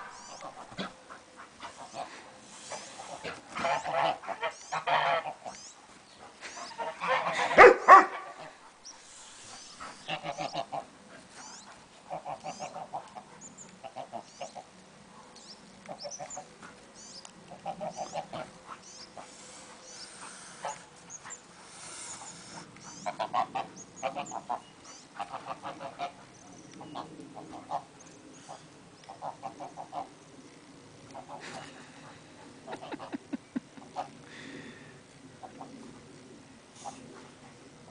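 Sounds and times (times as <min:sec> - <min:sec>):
geese honking: 0:00.0 - 0:05.6, 0:06.4 - 0:14.7, 0:17.5 - 0:26.2.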